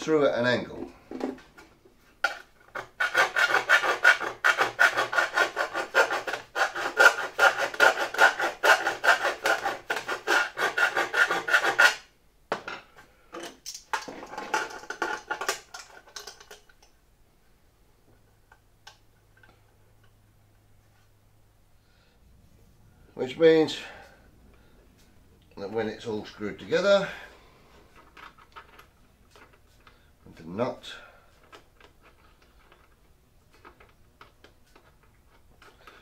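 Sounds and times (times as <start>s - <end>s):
file rasping in metal: 2.7s - 12.1s.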